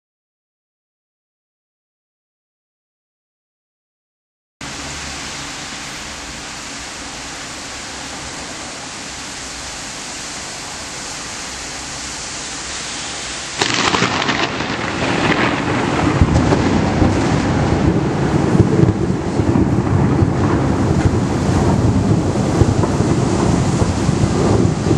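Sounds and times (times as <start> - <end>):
rain hissing: 4.6 - 24.9
thunder crack and rumble: 13.5 - 24.9.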